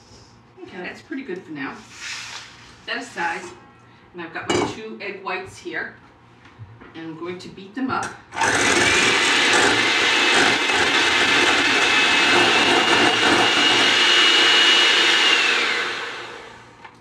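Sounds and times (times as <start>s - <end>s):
electric hand mixer whining: 8.4s - 16.8s.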